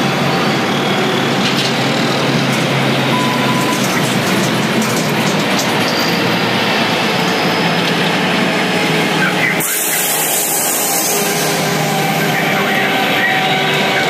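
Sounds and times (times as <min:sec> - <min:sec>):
road noise: 0:00.0 - 0:14.0
truck engine drone: 0:00.0 - 0:14.0.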